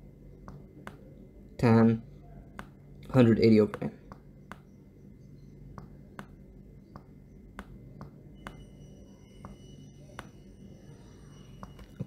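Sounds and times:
faint high whine: 0:00.0 - 0:12.0
steady low hum: 0:00.0 - 0:12.0
stylus tapping on drawing tablet: 0:00.4 - 0:01.1, 0:02.6 - 0:02.8, 0:03.6 - 0:04.8, 0:05.7 - 0:08.7, 0:09.4 - 0:10.4.

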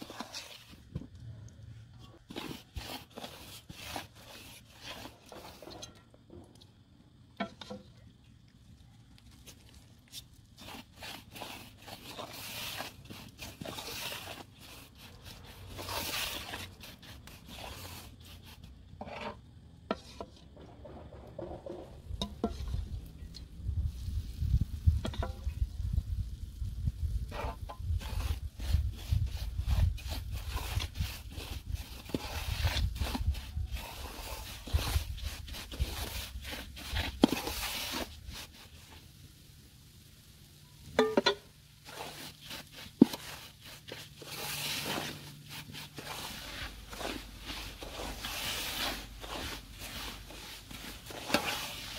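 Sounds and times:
wooden spoon scraping metal pan: 0:00.0 - 0:01.1, 0:02.0 - 0:06.6, 0:10.2 - 0:23.4, 0:24.9 - 0:25.5, 0:27.2 - 0:39.0, 0:41.0 - 0:51.9.

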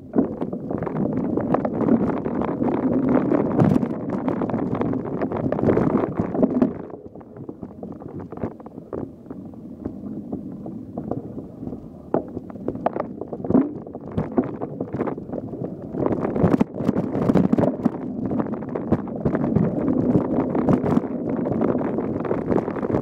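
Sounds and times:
wind on microphone: 0:00.0 - 0:23.0.

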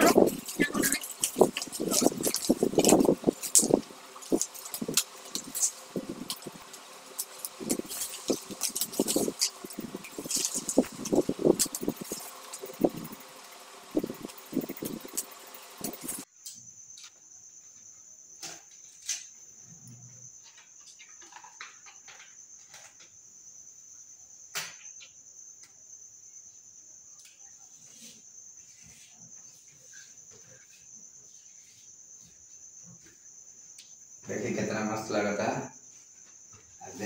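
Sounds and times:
paper backing rustling: 0:00.0 - 0:16.2
high-pitched insect trill: 0:00.0 - 0:37.0.

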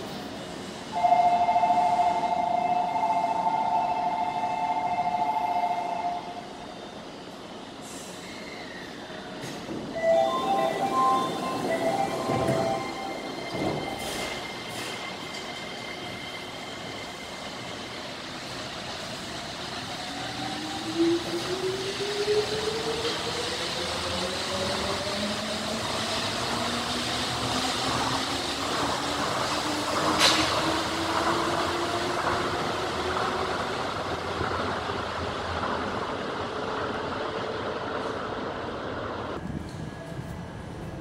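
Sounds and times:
monorail train running rumble: 0:00.0 - 0:41.0.

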